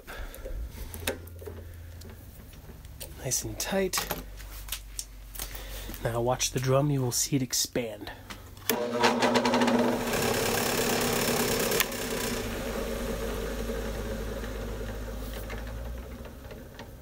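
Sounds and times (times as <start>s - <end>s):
drill press motor humming: 8.7s - 17.0s.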